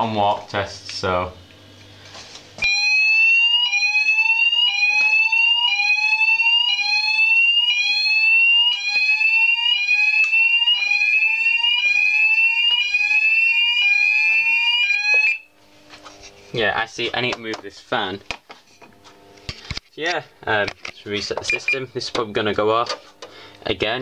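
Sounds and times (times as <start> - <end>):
steady high-pitched alarm tone: 2.6 - 15.5
fire alarm rising sweep tone: 2.6 - 15.6.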